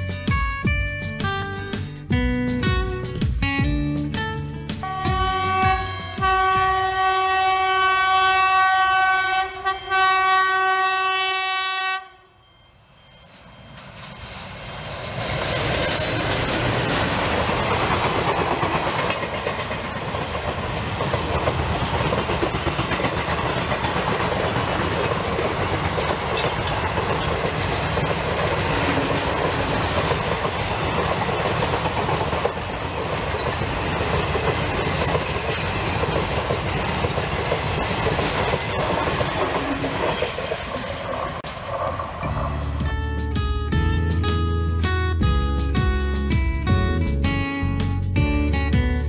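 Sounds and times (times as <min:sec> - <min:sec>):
train wheels clattering on rails: 0:15.1 - 0:44.5.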